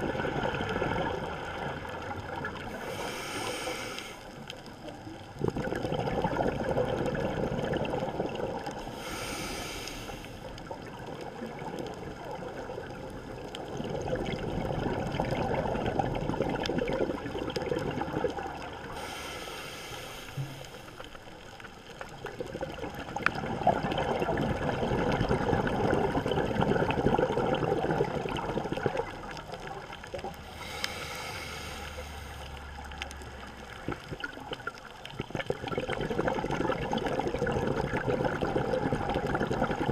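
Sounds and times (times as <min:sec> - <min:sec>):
gurgling exhaust bubbles: 0:00.0 - 0:03.1, 0:05.3 - 0:09.2, 0:10.6 - 0:19.2, 0:22.3 - 0:39.9
regulator inhale hiss: 0:02.7 - 0:04.4, 0:08.8 - 0:10.5, 0:18.9 - 0:21.2, 0:30.4 - 0:32.6.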